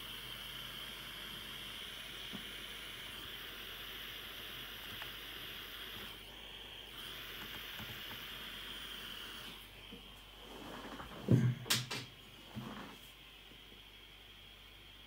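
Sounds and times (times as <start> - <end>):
gas soldering iron hissing: 0.0 - 11.1.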